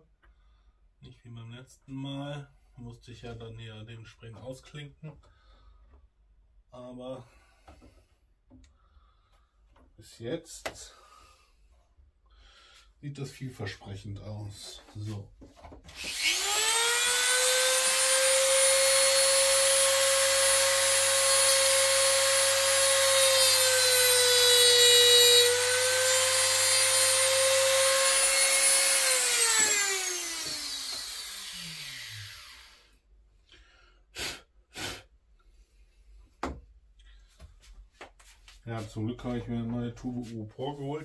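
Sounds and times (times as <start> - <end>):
electric motor whining: 16.0 - 21.2, 24.4 - 32.8.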